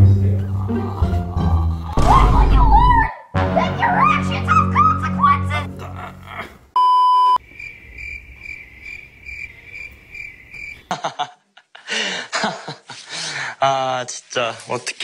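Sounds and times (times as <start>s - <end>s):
loud steady beep: 6.8s - 7.4s
cricket chirping sound effect: 7.4s - 10.9s.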